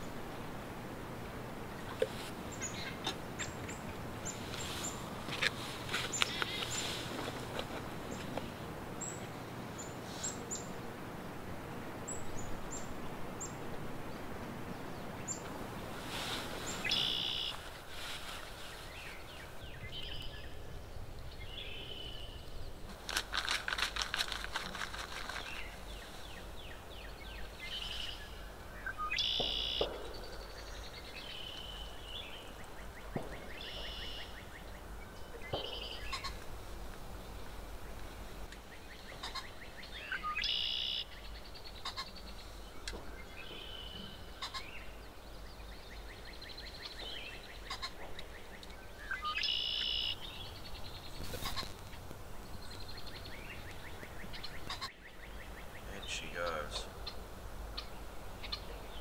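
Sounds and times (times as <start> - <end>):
short high animal calls: 16.8 - 17.6, 29.1 - 29.8
raspy animal call: 41.8 - 42.2.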